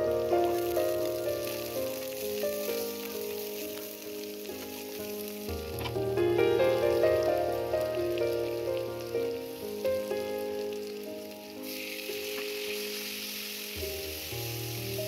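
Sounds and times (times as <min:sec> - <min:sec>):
instrumental background music: 0:00.0 - 0:15.0
vegetables sizzling in oil: 0:00.0 - 0:15.0.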